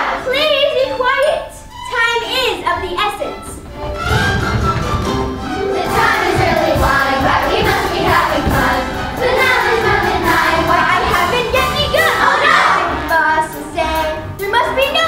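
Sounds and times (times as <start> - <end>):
instrumental accompaniment: 0.0 - 15.0
children's chorus singing: 5.5 - 14.8.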